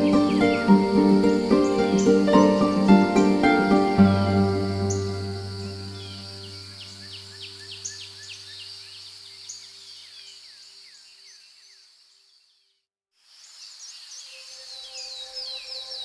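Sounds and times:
low music drone: 0.0 - 7.0
high insect drone: 0.0 - 9.3
birds chirping: 0.0 - 12.0.

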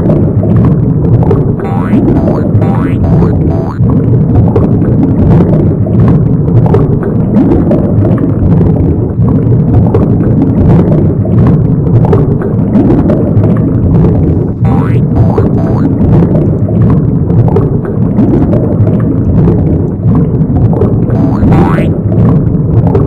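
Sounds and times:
springy boing glide: 1.5 - 3.9, 14.6 - 16.0, 21.1 - 22.2.

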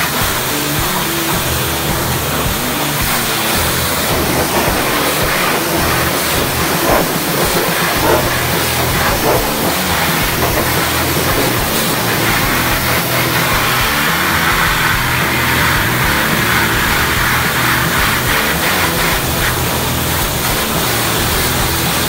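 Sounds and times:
pressure washer spraying metal: 0.0 - 22.0
low hum: 3.5 - 15.0.

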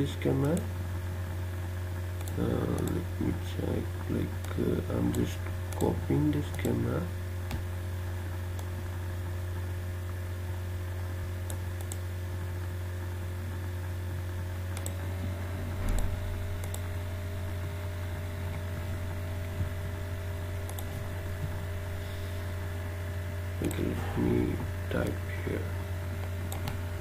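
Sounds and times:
electrical hum: 0.0 - 27.0
computer mouse clicks: 2.2 - 3.0, 4.4 - 6.8, 11.5 - 12.0, 14.7 - 15.0, 15.8 - 16.9, 20.6 - 21.0, 26.5 - 26.8.

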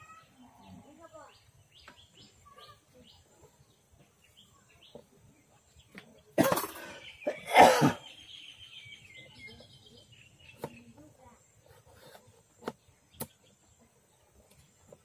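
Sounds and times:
faint bird chirps: 0.0 - 15.0
person coughing: 6.4 - 8.1.

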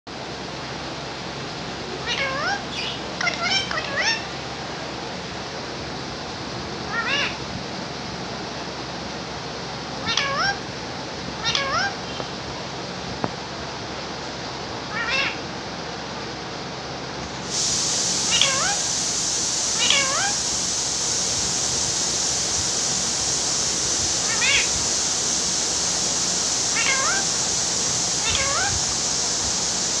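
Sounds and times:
steady hiss: 0.1 - 30.0
parakeet calls: 2.0 - 4.4, 6.8 - 7.5, 10.0 - 10.7, 11.4 - 12.4, 14.8 - 15.5, 17.5 - 20.7, 23.1 - 29.3.

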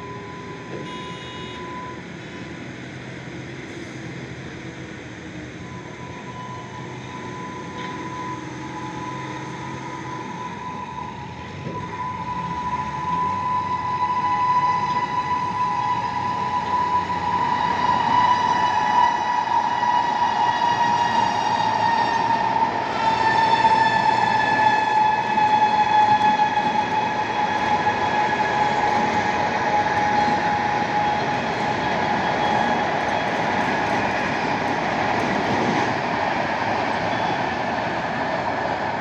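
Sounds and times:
train rumbling: 0.0 - 39.0
locomotive horn long note: 0.7 - 1.8, 10.9 - 32.9.

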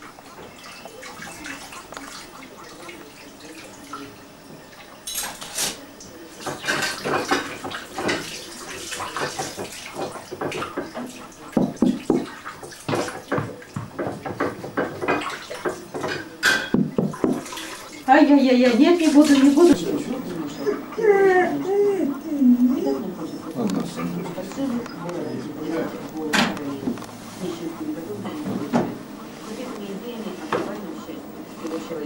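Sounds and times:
water running at sink: 0.0 - 32.0
dishes clattering and clinking: 4.5 - 29.6.

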